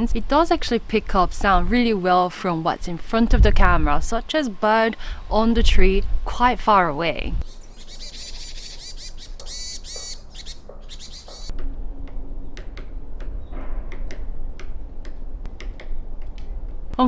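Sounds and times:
small birds chirping: 7.4s - 11.5s
woodpecker tapping: 7.4s - 16.8s.

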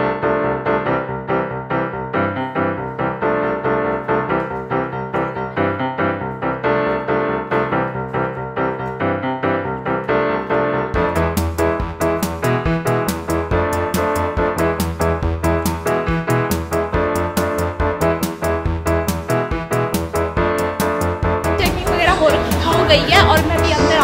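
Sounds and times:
piano-like keyboard melody: 0.0s - 24.0s
heavy bass: 11.0s - 24.0s.

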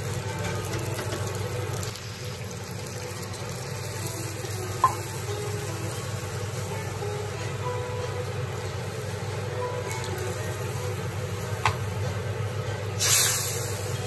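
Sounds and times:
food sizzling in a wok: 0.0s - 14.0s.

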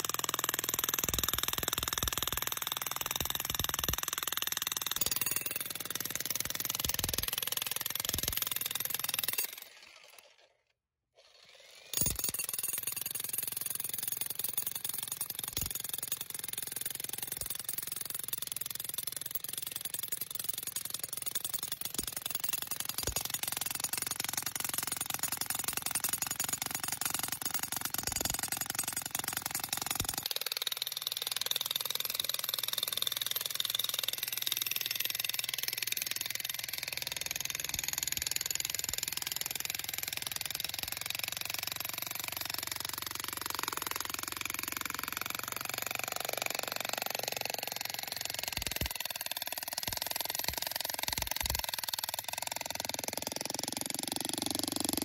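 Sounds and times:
jackhammer hammering rock: 0.0s - 10.4s, 11.2s - 55.0s.

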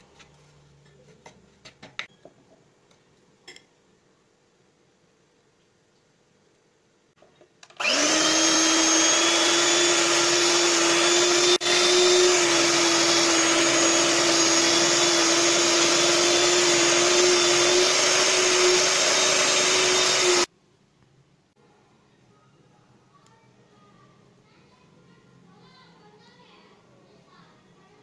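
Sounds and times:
electric hand mixer running: 7.7s - 20.5s.

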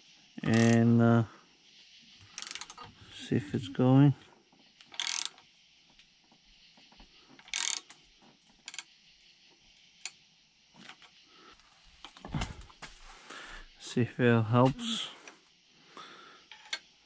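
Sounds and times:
ratchet clicking: 2.4s - 2.8s, 4.8s - 5.4s, 7.4s - 8.0s, 8.6s - 8.9s.

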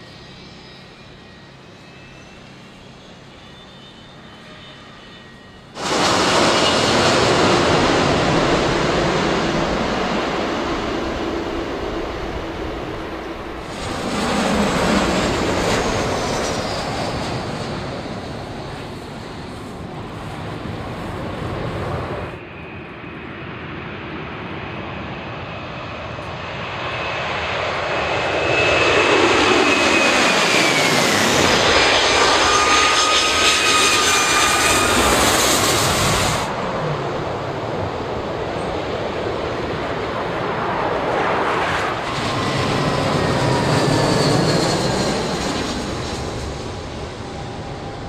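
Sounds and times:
jet airliner touching down: 0.0s - 48.0s
jet engines climbing overhead: 0.0s - 48.0s.

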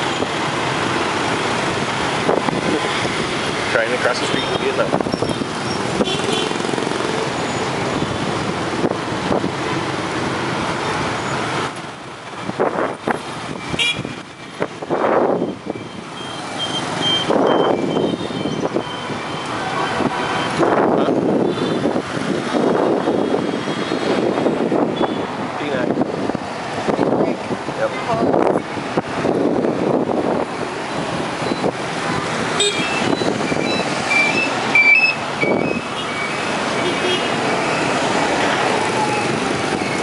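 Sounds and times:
scooters and cars passing: 0.0s - 40.0s
short high-pitched beeps: 32.7s - 36.4s.

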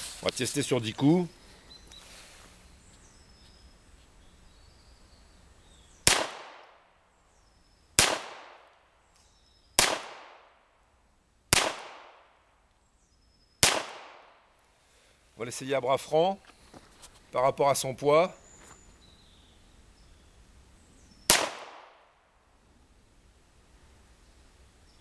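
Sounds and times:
pistol shots: 6.0s - 6.8s, 8.0s - 8.7s, 9.8s - 10.6s, 11.5s - 12.3s, 13.6s - 14.4s, 21.3s - 22.0s.

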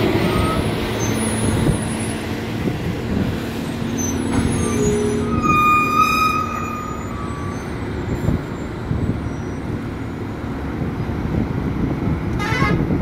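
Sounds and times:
lorries passing: 0.0s - 13.0s
shrill pulsing sound: 4.2s - 8.7s.

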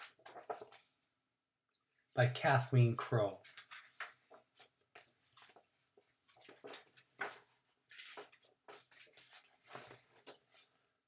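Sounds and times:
paper pages rustling: 0.0s - 0.9s, 3.4s - 10.7s.

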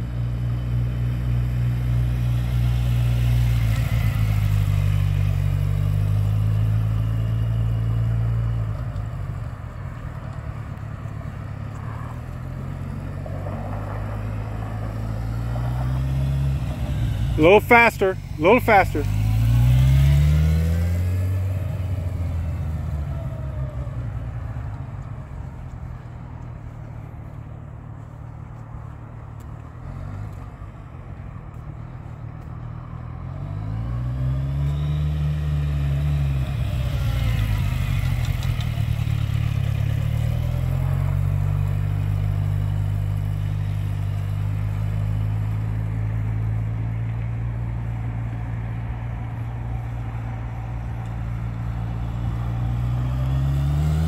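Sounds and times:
motorcycle engine passing: 1.2s - 8.6s, 11.7s - 24.6s, 33.0s - 46.6s, 50.0s - 54.0s.

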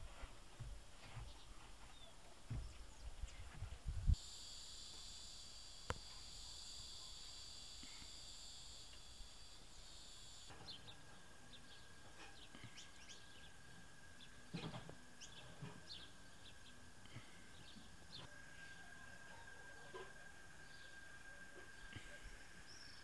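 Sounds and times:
high insect trill: 4.1s - 23.0s
thin steady tone: 4.1s - 23.0s.

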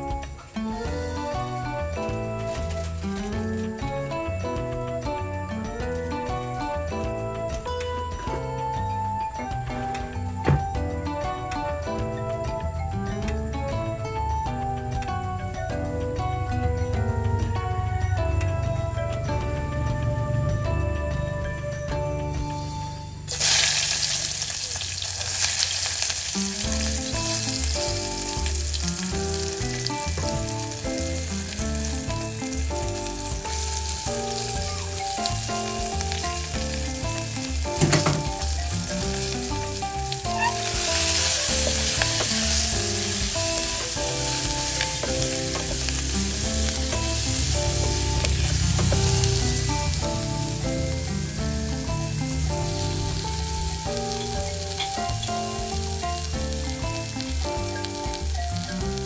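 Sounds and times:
vegetables sizzling in hot oil: 0.0s - 4.1s, 23.3s - 59.0s
background music: 0.0s - 59.0s
wooden spatula stirring: 38.0s - 49.5s.

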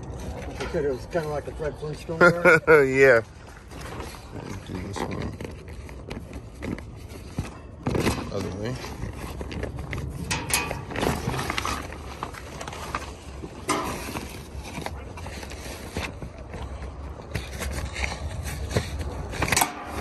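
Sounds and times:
plastic tarp rustling: 7.9s - 16.2s.

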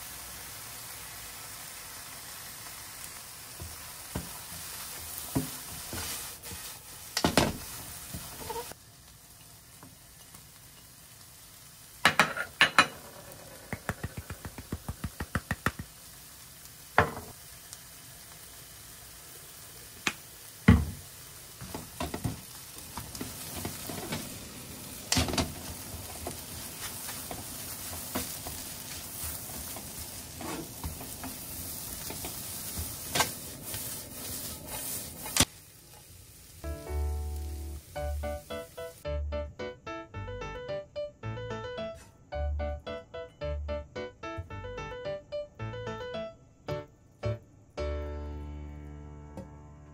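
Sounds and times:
food sizzling in a wok: 0.0s - 39.2s
spatula scraping a pan: 4.6s - 6.9s, 8.2s - 8.8s, 26.2s - 35.5s.

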